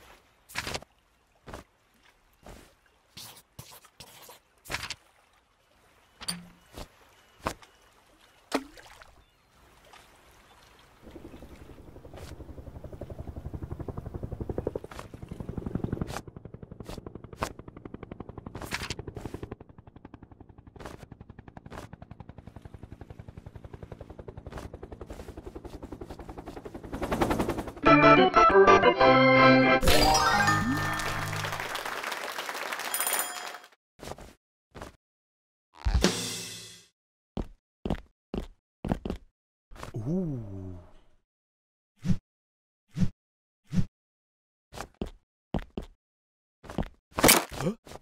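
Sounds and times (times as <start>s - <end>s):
helicopter rotor chopping: 11.2s - 28.0s.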